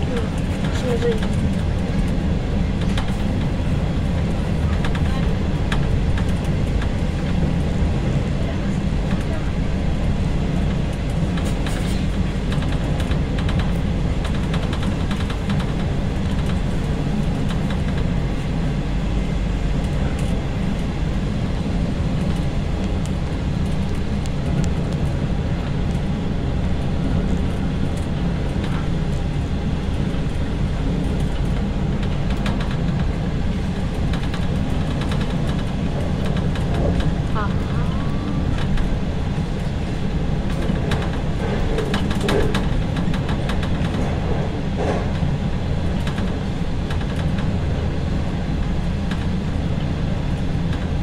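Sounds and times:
faint clicks and rattles: 0.0s - 3.6s, 10.7s - 18.6s, 26.8s - 37.5s, 38.5s - 47.6s
train wheels rumbling on rail: 0.0s - 51.0s.

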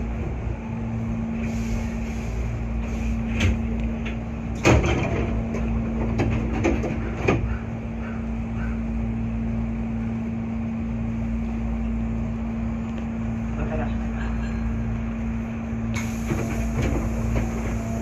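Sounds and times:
stationary train hum: 0.0s - 18.0s
train doors thumping shut: 3.2s - 7.8s, 15.9s - 18.0s.

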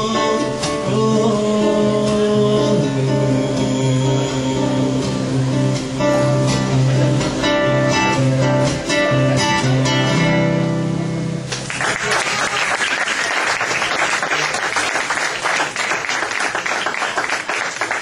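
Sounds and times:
acoustic guitar playing: 0.0s - 11.8s
audience applause: 11.5s - 18.0s.

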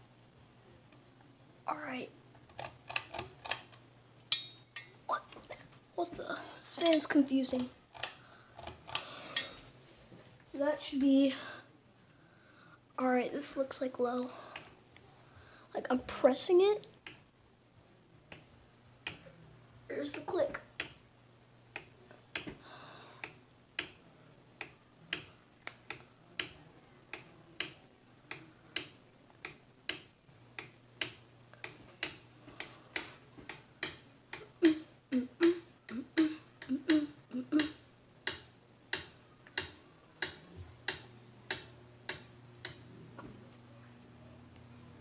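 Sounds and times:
faint motor hum: 0.0s - 45.0s
ceiling fan clicking: 0.4s - 1.0s, 2.4s - 6.2s, 6.8s - 9.6s, 16.8s - 17.3s, 18.3s - 19.4s, 20.1s - 21.1s, 21.7s - 43.4s.

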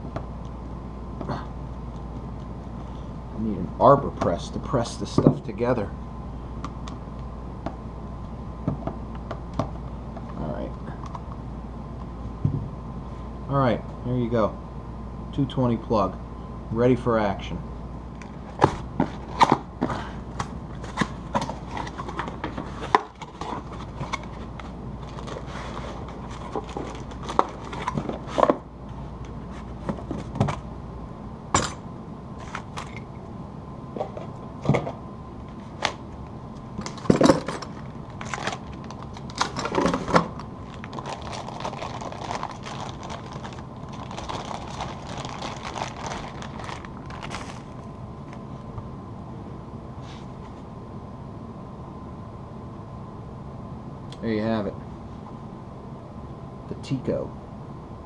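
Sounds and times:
plastic crinkling: 21.5s - 28.4s, 36.8s - 47.9s.

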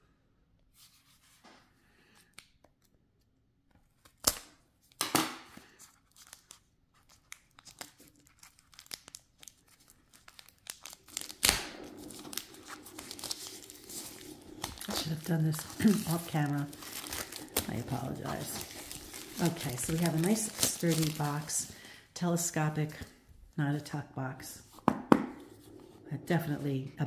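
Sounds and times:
shrink-wrap tearing and crinkling: 4.0s - 21.8s.

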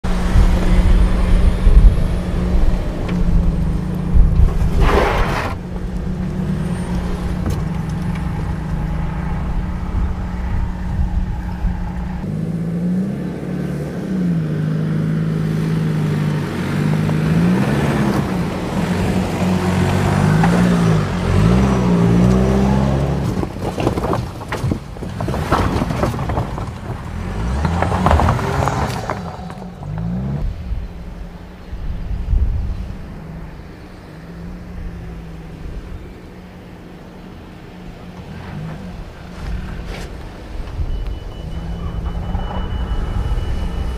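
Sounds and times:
truck engine revving: 0.0s - 23.5s.

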